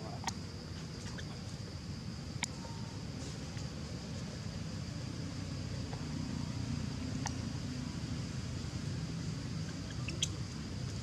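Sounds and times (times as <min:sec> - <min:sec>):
steady low rumble: 0:01.4 - 0:11.0.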